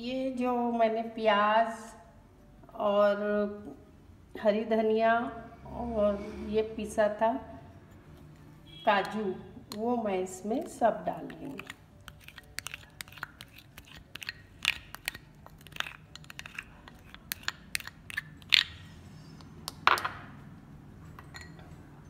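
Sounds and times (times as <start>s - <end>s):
spoon tapping bowls: 9.0s - 18.8s
plastic spoon scraping glass bowl: 10.5s - 19.4s.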